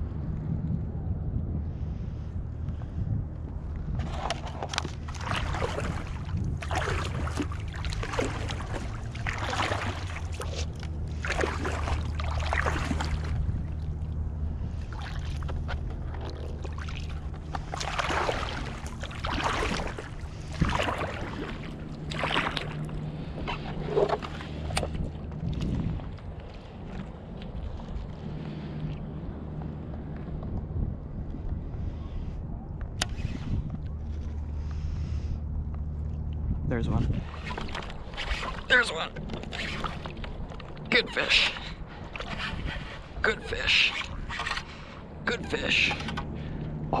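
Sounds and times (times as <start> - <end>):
low rumble: 0.0 - 40.9, 44.0 - 47.0
arm paddling through water: 3.9 - 30.3, 37.1 - 47.0.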